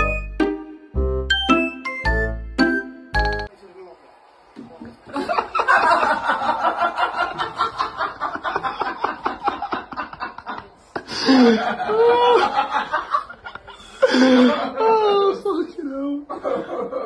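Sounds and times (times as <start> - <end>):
person laughing: 8.6 - 15.3.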